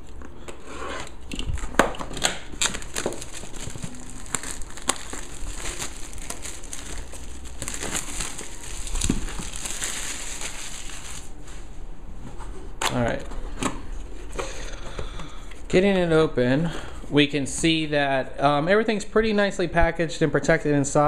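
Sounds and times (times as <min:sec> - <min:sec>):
plastic wrap crinkling: 0:02.3 - 0:11.4.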